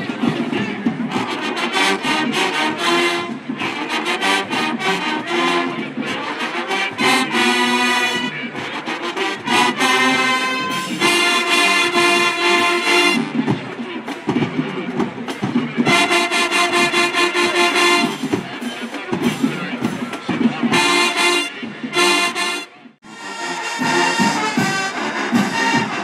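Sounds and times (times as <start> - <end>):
brass chords: 0.0 - 26.0
marching band playing: 0.0 - 26.0
steady drum beat: 0.0 - 26.0.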